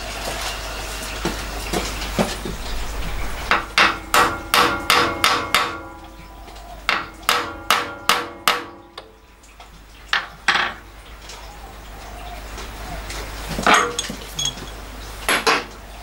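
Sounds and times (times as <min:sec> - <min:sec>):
hammer tapping steel: 0:03.5 - 0:06.0, 0:06.9 - 0:09.1.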